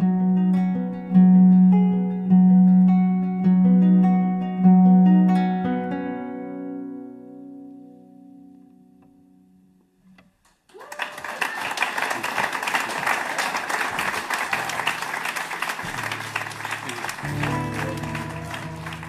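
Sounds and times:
acoustic guitar music: 0.0s - 10.4s, 13.9s - 19.0s
applause and cheering: 10.7s - 19.0s.

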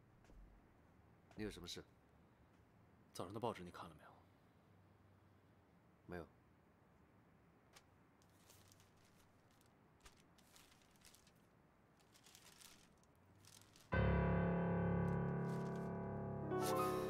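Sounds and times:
faint rustles: 7.8s - 14.0s
piano-like keyboard chords: 14.0s - 17.0s.

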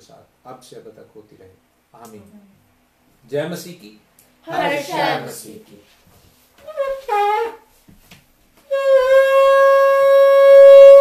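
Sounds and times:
ram's horn long note: 8.7s - 11.0s.

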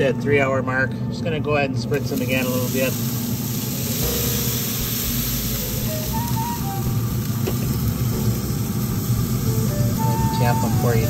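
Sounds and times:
grill fan and motor humming: 0.0s - 11.0s
even hiss: 1.9s - 11.0s.

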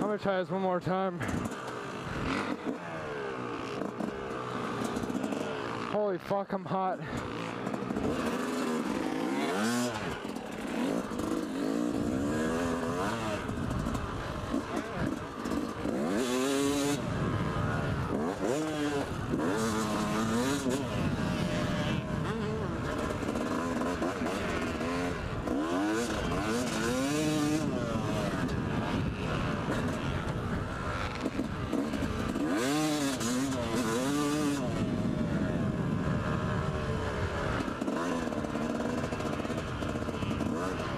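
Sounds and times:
motocross bike engine revving: 0.0s - 40.9s.

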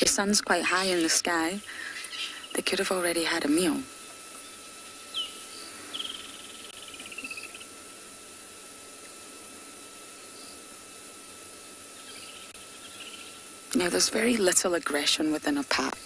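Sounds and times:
constant hiss: 0.0s - 16.0s
insects droning: 0.0s - 16.0s.

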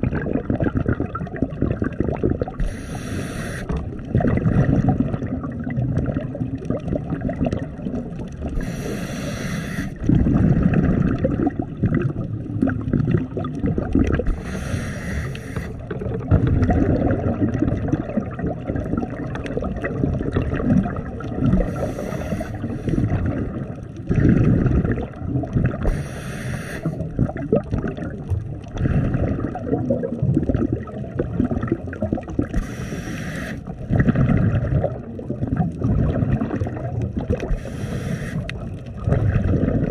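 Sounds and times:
exhaled bubbles gurgling: 0.0s - 39.9s
low water rumble: 0.0s - 39.9s
regulator inhalation hiss: 2.6s - 3.8s, 8.6s - 10.0s, 14.3s - 15.8s, 21.6s - 23.2s, 25.9s - 27.0s, 32.6s - 33.7s, 37.5s - 38.5s.

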